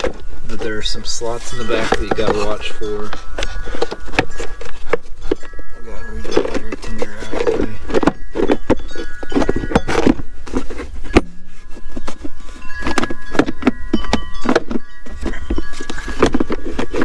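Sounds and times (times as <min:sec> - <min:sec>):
plastic knocks clicks and scrapes: 0:00.0 - 0:01.1, 0:01.7 - 0:05.6, 0:06.3 - 0:17.0.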